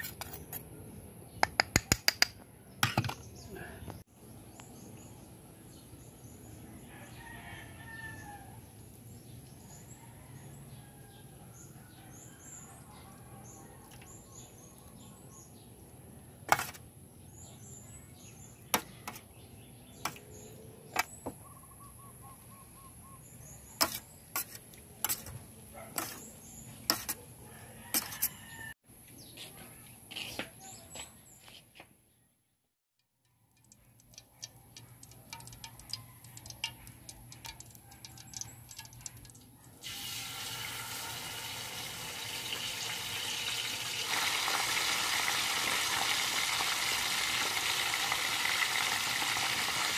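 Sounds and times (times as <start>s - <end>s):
faint birds chirping: 2.4s - 32.6s, 33.3s - 39.8s.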